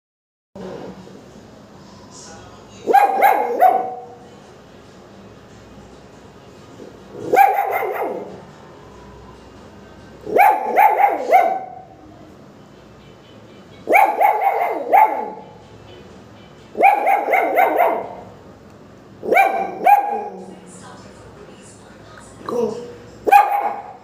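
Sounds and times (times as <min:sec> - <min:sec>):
small dog yapping: 0:16.8 - 0:18.2.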